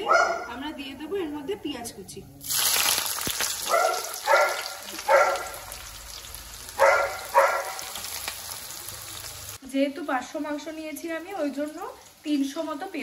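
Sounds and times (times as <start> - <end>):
dog barking: 0.0 - 0.6, 3.6 - 5.7, 6.8 - 8.0
onions sizzling in hot oil: 2.4 - 13.0.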